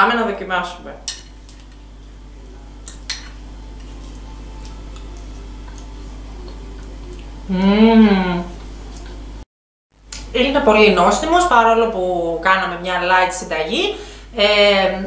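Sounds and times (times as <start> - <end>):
steady low hum: 0.0 - 9.4
woman humming mmm: 3.6 - 9.2.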